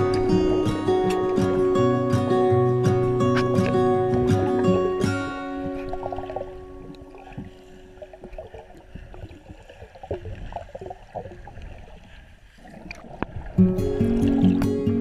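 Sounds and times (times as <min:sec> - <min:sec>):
music: 0:00.0 - 0:08.0, 0:13.6 - 0:15.0
water gurgling and bubbling underwater: 0:00.0 - 0:15.0.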